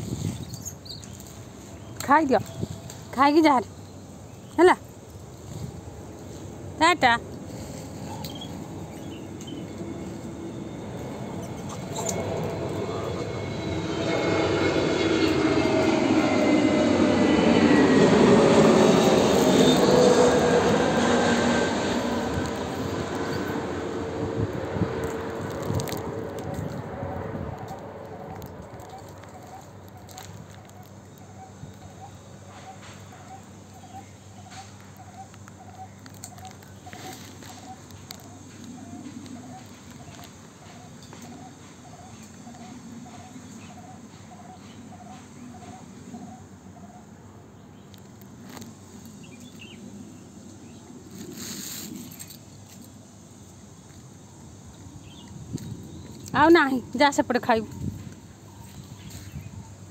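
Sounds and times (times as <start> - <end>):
passing vehicle rumble: 4.2 - 31.9.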